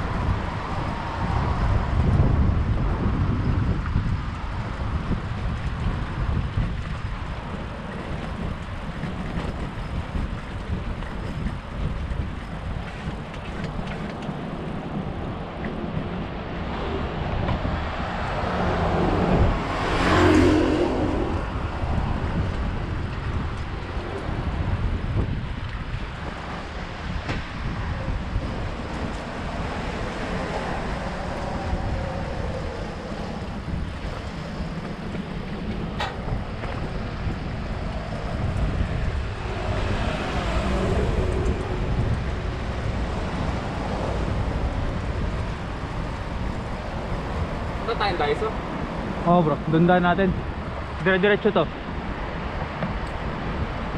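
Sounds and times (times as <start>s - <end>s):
wind buffeting microphone: 0.0s - 53.9s
motor vehicle passing: 14.0s - 53.9s.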